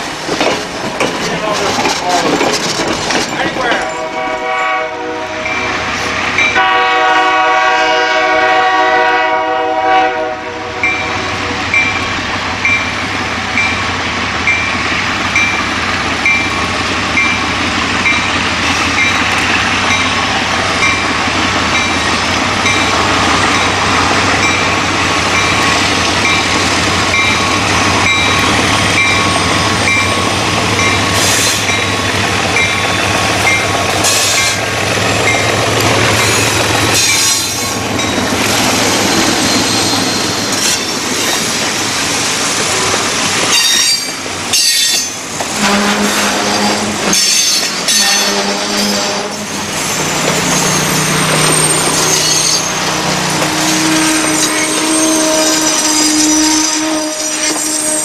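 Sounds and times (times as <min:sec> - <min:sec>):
train running sounds: 0:00.0 - 0:58.0
locomotive bell ringing: 0:03.2 - 0:04.8, 0:05.4 - 0:05.8, 0:06.4 - 0:06.8, 0:10.8 - 0:13.0, 0:15.4 - 0:23.8, 0:24.4 - 0:41.4, 0:43.5 - 0:45.8, 0:46.5 - 0:58.0
locomotive horn blast: 0:03.8 - 0:05.8, 0:06.5 - 0:11.6, 0:45.5 - 0:47.3, 0:47.9 - 0:49.6, 0:50.6 - 0:58.0.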